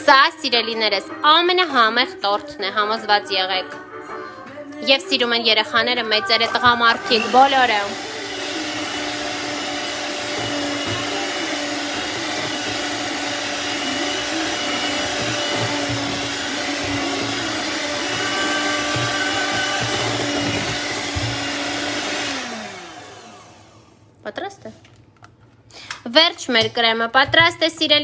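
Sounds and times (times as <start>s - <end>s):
electric hand mixer running: 6.2s - 24.1s.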